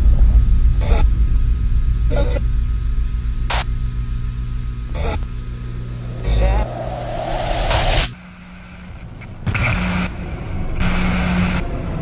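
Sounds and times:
deep low rumble: 0:00.0 - 0:09.2
boom: 0:05.8 - 0:08.1.

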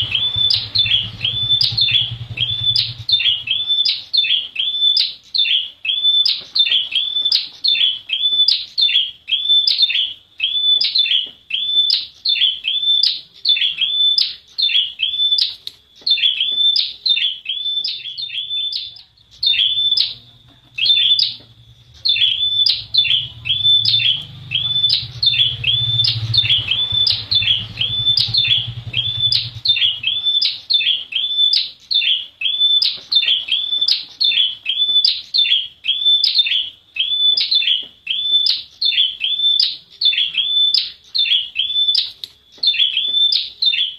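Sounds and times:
low hum: 0:00.0 - 0:03.6, 0:19.1 - 0:30.4
bird calling in sharp high notes: 0:00.0 - 0:43.9.

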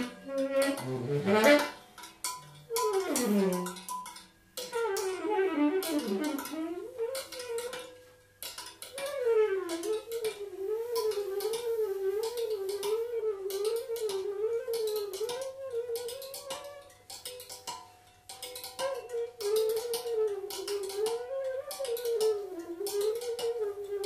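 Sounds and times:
woodwind playing sliding line: 0:00.0 - 0:01.8, 0:09.0 - 0:16.9
sharp percussive taps: 0:07.2 - 0:23.7.

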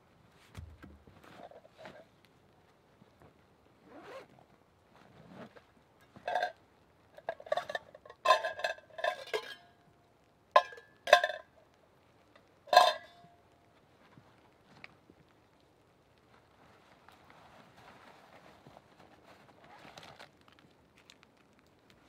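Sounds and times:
metal containers clinking: 0:06.1 - 0:06.6, 0:07.2 - 0:09.8, 0:10.6 - 0:11.5, 0:12.7 - 0:13.3.

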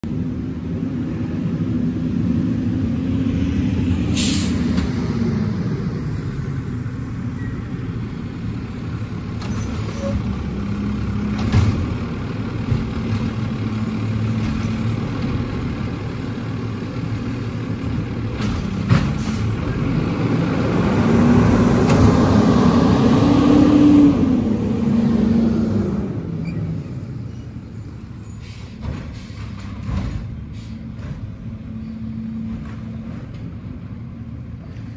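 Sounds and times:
diesel truck engine revving: 0:00.2 - 0:33.2
air brake hisses: 0:04.1 - 0:04.7, 0:28.2 - 0:29.6, 0:30.4 - 0:30.9.

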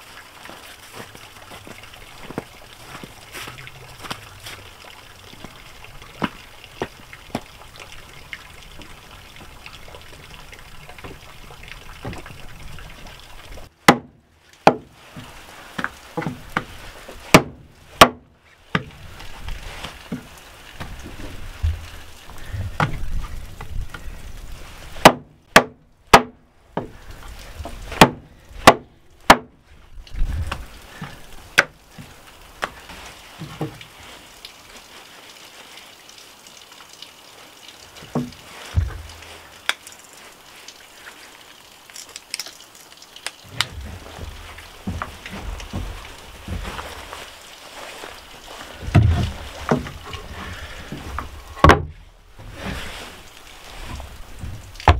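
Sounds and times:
running water trickle: 0:00.0 - 0:54.9
axe chopping ribs on wooden board: 0:13.8 - 0:14.9, 0:17.3 - 0:18.2, 0:25.0 - 0:26.3, 0:28.0 - 0:29.5.

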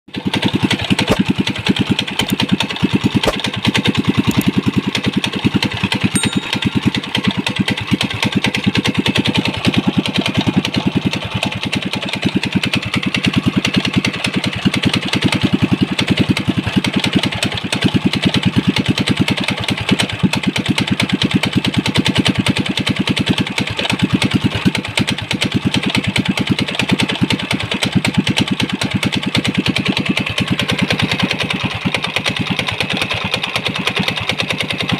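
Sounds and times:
small engine running: 0:00.1 - 0:34.9.

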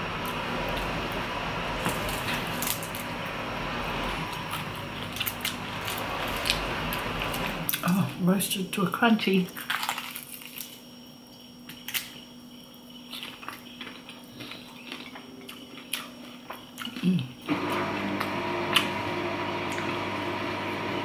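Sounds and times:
dishwasher humming: 0:00.0 - 0:08.1, 0:17.5 - 0:21.0
person chewing crunchy food: 0:09.6 - 0:10.8, 0:13.0 - 0:17.4.

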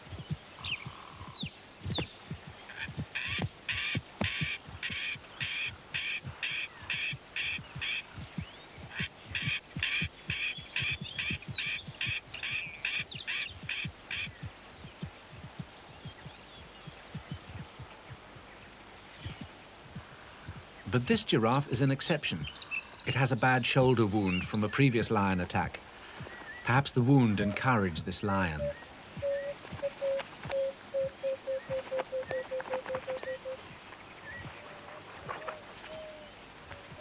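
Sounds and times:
hooves thudding on dry ground: 0:00.0 - 0:37.0
bird calling harsh rapid notes: 0:02.7 - 0:15.0.

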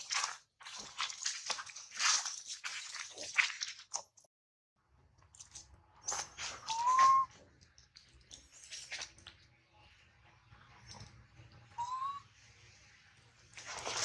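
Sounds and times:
baby monkey whistle-like coo: 0:06.6 - 0:07.3, 0:11.7 - 0:12.3.

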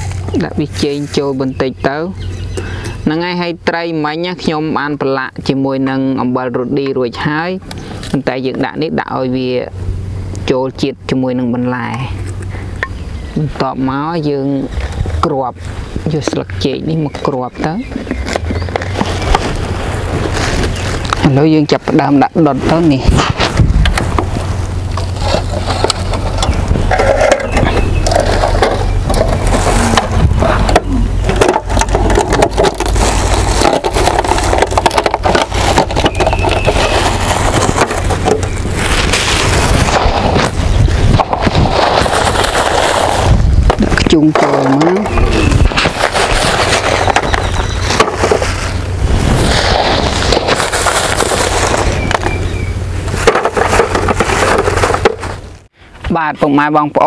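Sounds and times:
dry wood crackling: 0:00.0 - 0:10.6, 0:11.7 - 0:56.2
steady low hum: 0:00.0 - 0:44.4, 0:45.0 - 0:56.1
low rumble: 0:17.8 - 0:44.0, 0:45.0 - 0:55.8
wood fire crackling: 0:28.0 - 0:41.0.

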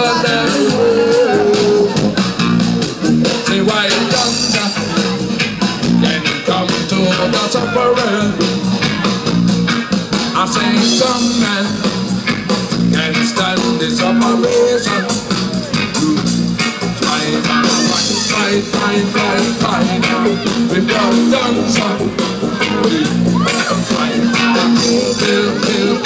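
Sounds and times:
person singing: 0:00.0 - 0:02.2, 0:06.0 - 0:08.6, 0:10.3 - 0:12.1, 0:12.8 - 0:16.2, 0:16.8 - 0:26.0
bass line: 0:00.0 - 0:26.0
chopped rhythm guitar: 0:00.0 - 0:26.0.

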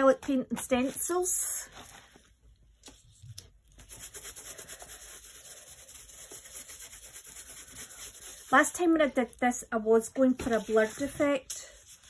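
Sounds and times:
paintbrush rubbing through stencil: 0:03.7 - 0:08.7.

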